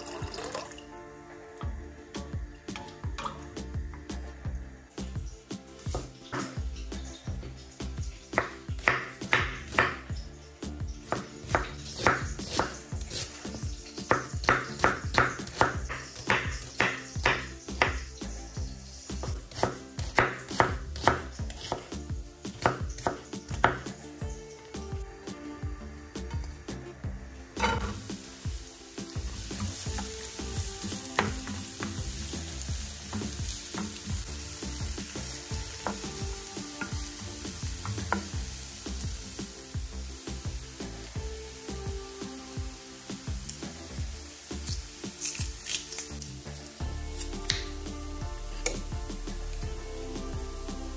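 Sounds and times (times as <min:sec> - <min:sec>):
food sizzling in hot oil: 0:00.0 - 0:01.0, 0:04.9 - 0:24.0, 0:27.5 - 0:50.9
background music: 0:00.0 - 0:50.9
knife chopping on cutting board: 0:19.3 - 0:21.9.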